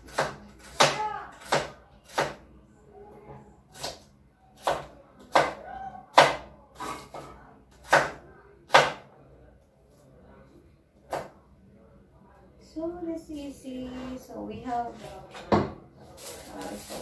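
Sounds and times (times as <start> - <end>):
knife chopping meat on board: 0.0 - 2.4.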